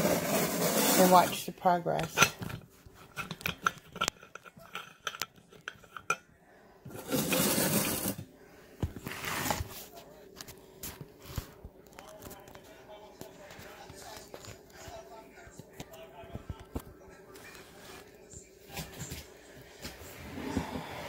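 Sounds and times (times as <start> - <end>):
phone scraping on counter: 0.0 - 1.4, 6.9 - 8.2, 9.0 - 9.8
dishes and utensils clinking: 1.0 - 6.3.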